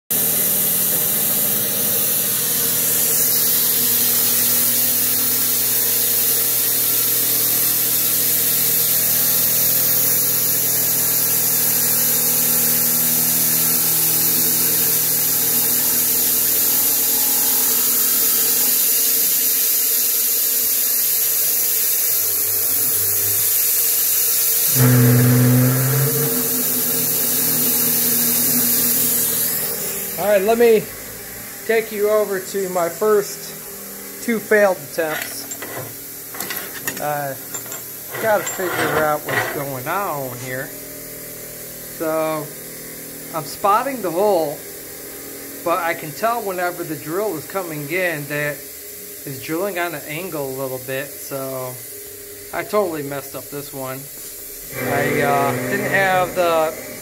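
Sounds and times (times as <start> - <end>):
coolant spraying hiss: 0.2 - 24.8, 31.7 - 38.1, 45.6 - 57.0
milling machine hum: 22.0 - 40.4, 54.4 - 57.0
loud low drone: 24.7 - 33.8.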